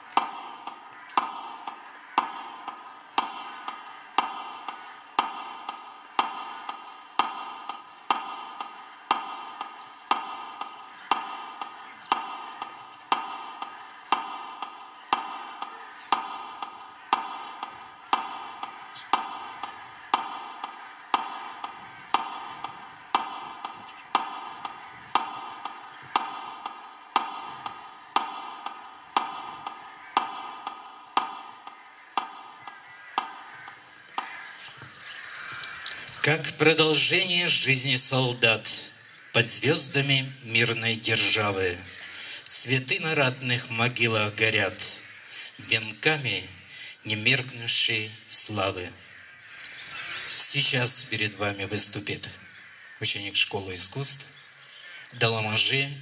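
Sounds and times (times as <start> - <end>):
metronome ticking: 0.0 - 38.1.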